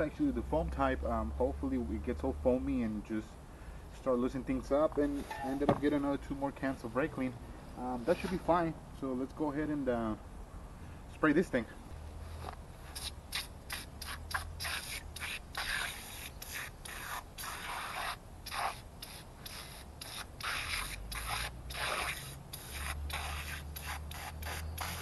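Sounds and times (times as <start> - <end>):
aerosol spray hissing: 12.9 - 25.0.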